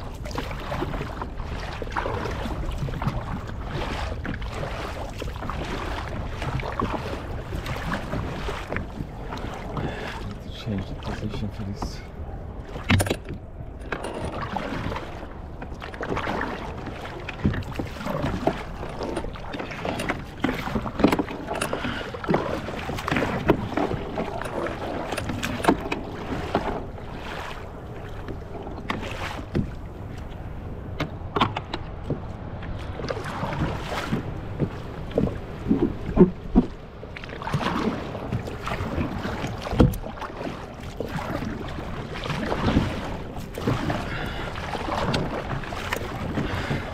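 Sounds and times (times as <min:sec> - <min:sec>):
water splashing around a kayak: 0:00.0 - 0:46.9
knocks against a hull: 0:12.8 - 0:15.0, 0:17.2 - 0:26.9, 0:28.2 - 0:30.2, 0:30.9 - 0:32.3, 0:33.6 - 0:36.8, 0:37.6 - 0:41.6, 0:42.4 - 0:46.9.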